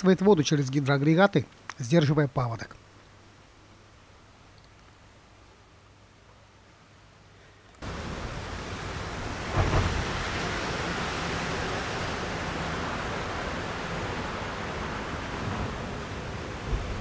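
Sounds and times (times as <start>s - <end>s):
fast-flowing river rushing: 7.8s - 17.0s
wind buffeting microphone: 9.0s - 17.0s.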